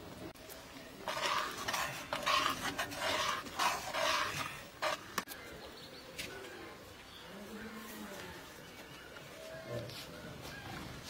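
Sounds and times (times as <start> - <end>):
ladle scraping pot: 1.0 - 5.2.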